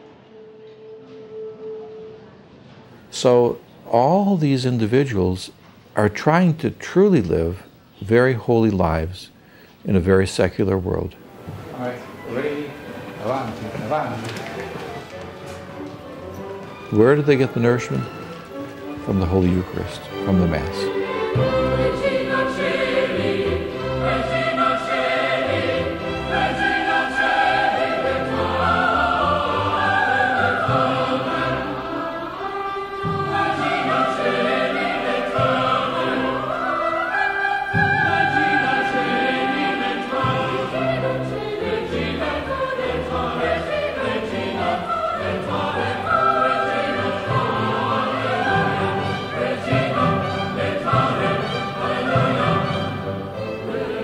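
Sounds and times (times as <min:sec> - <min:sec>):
church choir singing: 0:10.0 - 0:54.0
orchestral accompaniment: 0:11.3 - 0:54.0.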